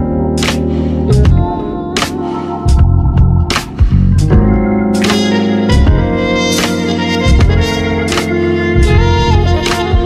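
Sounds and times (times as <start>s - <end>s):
strong bass line: 0.0s - 10.0s
drum beat: 2.7s - 7.8s, 8.8s - 10.0s.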